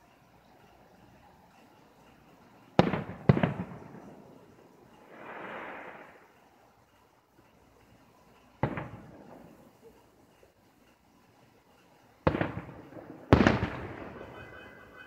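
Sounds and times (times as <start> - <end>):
rushing hiss: 1.4 - 13.4
firework shells bursting: 1.5 - 15.0.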